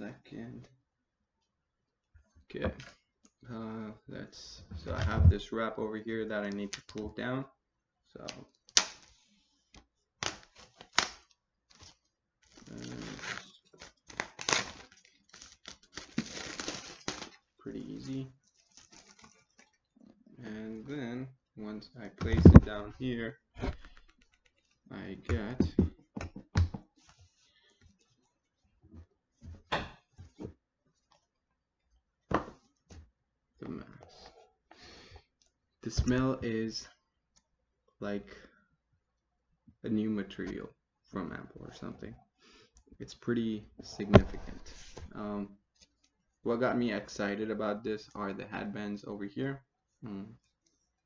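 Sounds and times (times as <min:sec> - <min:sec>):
plastic shrink wrap crinkling: 0:10.2 - 0:19.8.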